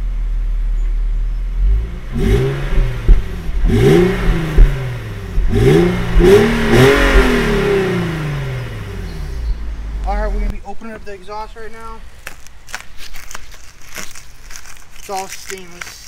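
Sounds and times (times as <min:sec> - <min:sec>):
car engine idling and revving: 0:00.0 - 0:12.6.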